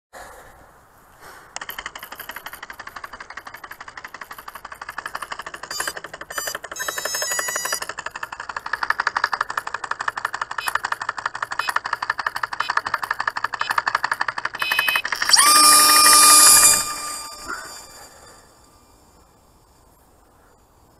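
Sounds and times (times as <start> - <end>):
rudder actuator ticking rapidly: 1.6 - 16.0
speed controller beeps: 4.3 - 8.8, 9.6 - 18.4.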